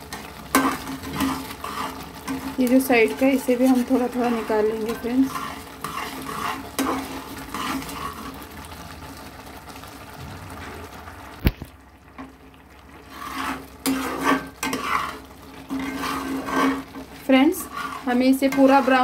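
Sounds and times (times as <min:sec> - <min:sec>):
metal spatula scraping a pot: 0:00.0 - 0:08.4, 0:13.0 - 0:19.0
faint sizzle: 0:00.0 - 0:19.0.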